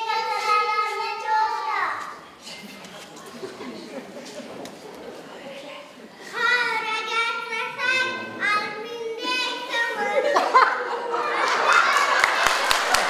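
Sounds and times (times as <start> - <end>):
child reciting sing-song: 0.0 - 2.2, 6.3 - 10.4
room voices and noise: 0.0 - 13.0.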